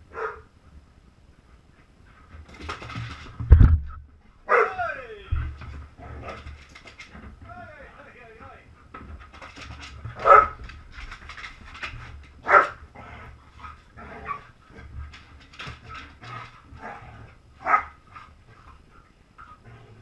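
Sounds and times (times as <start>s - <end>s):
dogs barking: 0.1s - 0.5s, 4.5s - 4.8s, 10.2s - 10.6s, 12.4s - 12.8s, 17.6s - 18.0s
dogs play fighting noises: 1.3s - 3.5s, 5.5s - 7.5s, 8.8s - 20.0s.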